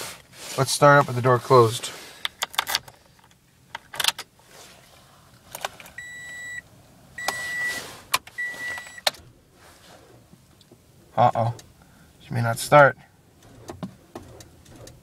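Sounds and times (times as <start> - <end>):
ignition key clicking and jingling: 2.2 - 4.3
dashboard warning chime beeps: 6.0 - 6.6, 7.2 - 7.8, 8.4 - 9.1.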